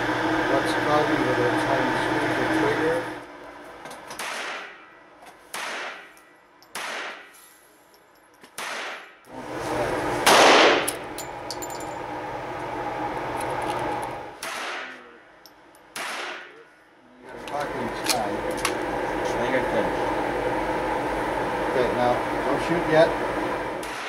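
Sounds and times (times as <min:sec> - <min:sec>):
steady background noise: 0:00.0 - 0:24.0
pistol shots indoors: 0:04.2 - 0:04.9, 0:05.5 - 0:07.4, 0:08.6 - 0:09.1, 0:10.2 - 0:11.0, 0:15.9 - 0:16.5
loud bang: 0:10.2 - 0:10.9.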